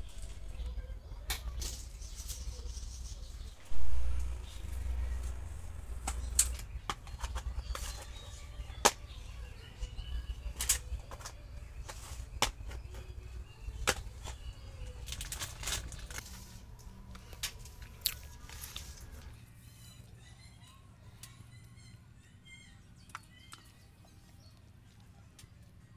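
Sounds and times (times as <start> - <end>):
steady low rumble: 0.0 - 20.5.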